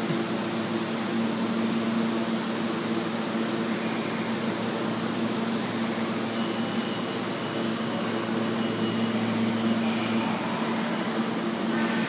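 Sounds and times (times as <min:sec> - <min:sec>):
low machinery drone: 0:00.0 - 0:12.0
faint high whine: 0:03.1 - 0:12.0.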